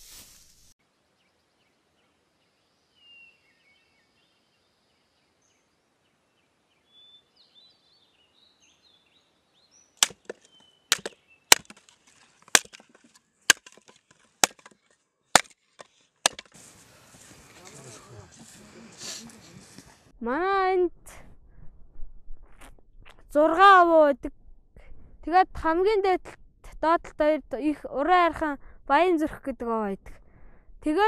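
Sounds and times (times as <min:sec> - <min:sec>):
sharp chopping knocks: 0:10.0 - 0:14.8, 0:15.4 - 0:16.5.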